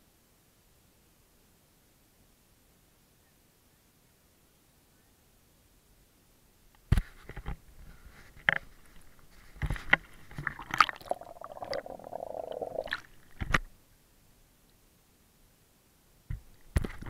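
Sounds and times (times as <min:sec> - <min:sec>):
water splashing and gurgling: 0:10.3 - 0:13.4.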